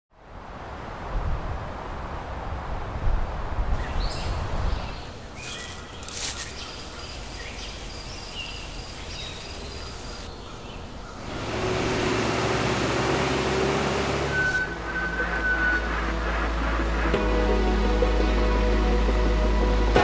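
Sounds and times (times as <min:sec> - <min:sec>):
low windy rumble: 0:00.1 - 0:20.0
steady rushing noise: 0:00.3 - 0:20.0
faint high chirping calls: 0:03.8 - 0:11.2.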